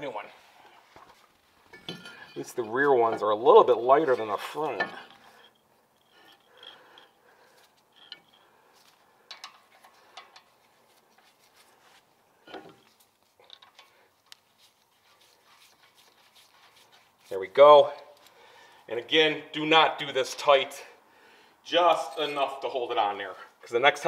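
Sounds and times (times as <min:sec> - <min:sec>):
faint metal clicks and taps: 0:09.2 - 0:10.6.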